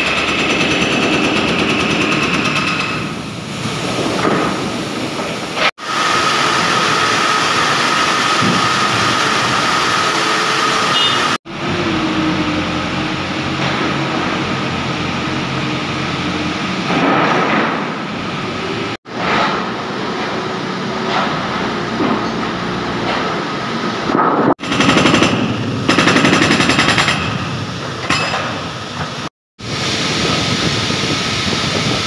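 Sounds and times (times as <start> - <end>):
hydraulic breaker hammering: 0.0 - 4.8, 5.8 - 11.4, 24.2 - 29.2
diesel engine rumble with whine: 3.2 - 24.6, 28.7 - 32.0.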